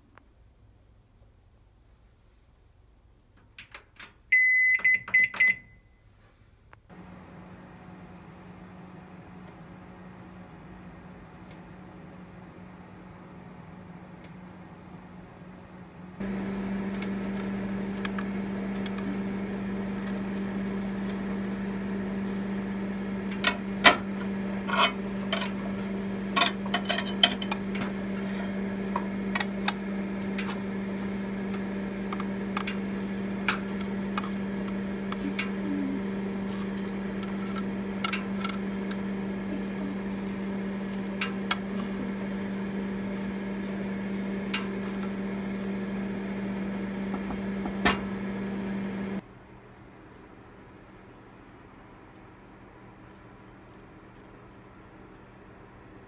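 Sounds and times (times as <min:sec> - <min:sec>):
microwave oven humming: 0:03.8 - 0:05.8, 0:06.9 - 0:56.0.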